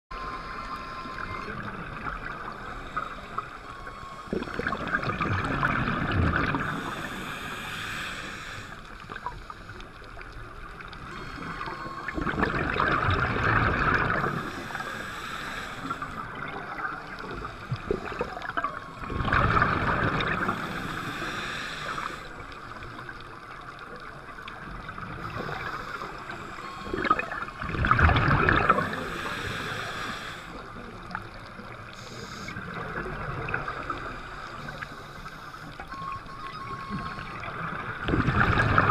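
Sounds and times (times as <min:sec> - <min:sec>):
exhaled bubbles gurgling underwater: 0:00.1 - 0:38.9
regulator hiss: 0:06.6 - 0:09.8, 0:14.2 - 0:16.3, 0:20.4 - 0:22.5, 0:28.8 - 0:30.8.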